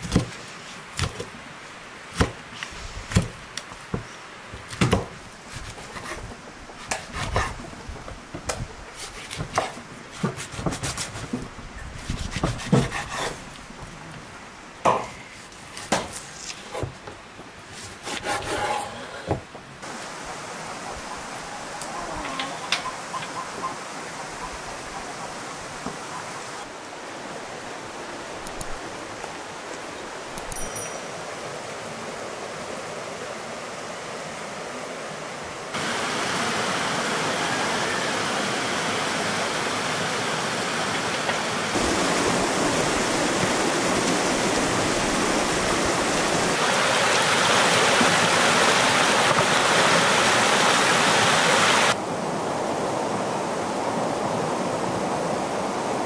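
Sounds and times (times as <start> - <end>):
faint outdoor hiss: 0.0 - 56.0
stream rushing over stones: 19.8 - 21.8, 23.8 - 56.0.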